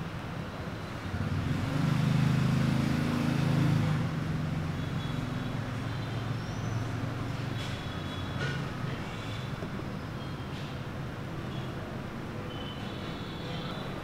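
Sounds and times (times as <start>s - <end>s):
steady traffic noise: 0.0s - 14.0s
vehicle engine passing: 1.1s - 9.0s.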